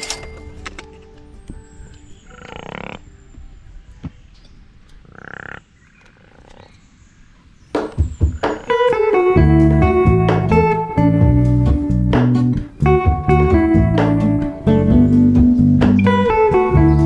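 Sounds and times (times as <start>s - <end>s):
animal rasping pulsed calls: 2.0s - 3.3s, 8.0s - 10.0s
loud sharp knocks: 7.8s - 8.7s.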